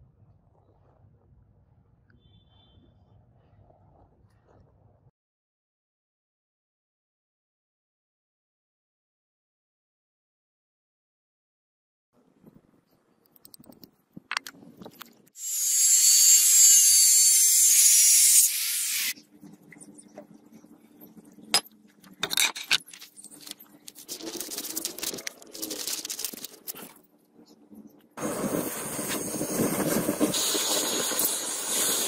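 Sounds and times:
scissors cutting paper: 22.7 - 27.0.

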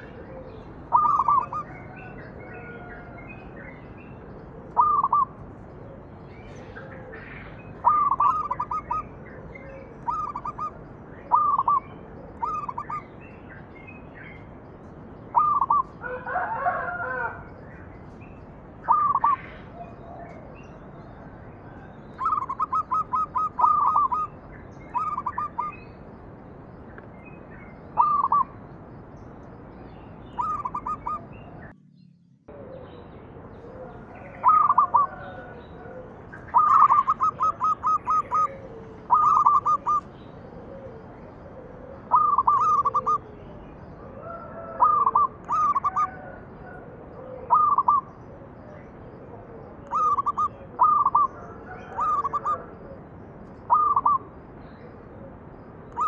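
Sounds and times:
dove cooing: 0.0 - 13.1, 15.3 - 17.6, 18.8 - 25.8, 28.0 - 28.6, 30.4 - 31.3, 32.5 - 55.3.

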